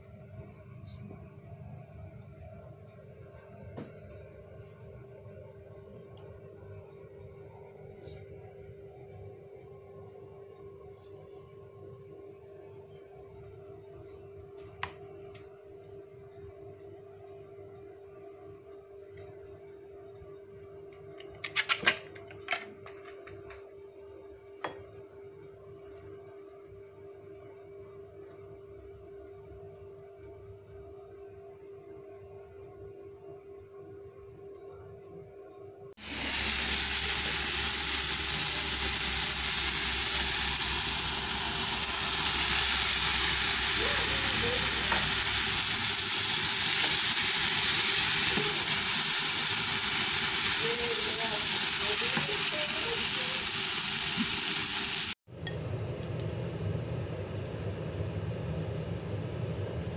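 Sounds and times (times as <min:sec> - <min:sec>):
faint hum: 0:00.0 - 0:21.3, 0:22.4 - 0:53.6, 0:55.3 - 0:59.9
food sizzling in hot oil: 0:36.0 - 0:55.2.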